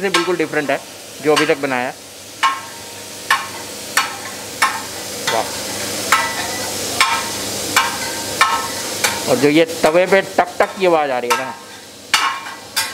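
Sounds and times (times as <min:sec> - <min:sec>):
metal spatula tapping iron griddle: 0:00.0 - 0:00.6, 0:01.3 - 0:01.7, 0:02.4 - 0:09.4, 0:10.6 - 0:12.9
food sizzling: 0:00.0 - 0:12.9.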